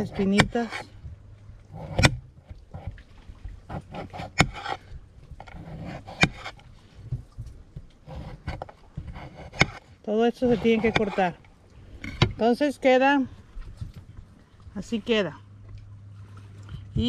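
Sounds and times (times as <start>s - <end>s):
knife slicing and scraping cactus: 0.0s - 1.0s, 1.7s - 3.0s, 3.7s - 4.8s, 5.4s - 6.7s, 8.0s - 11.4s.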